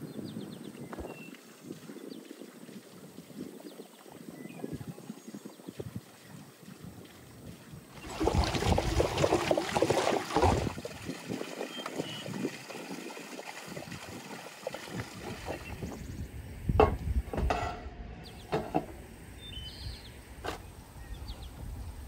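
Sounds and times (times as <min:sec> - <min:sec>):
water gushing into stone basin: 0:01.5 - 0:16.1.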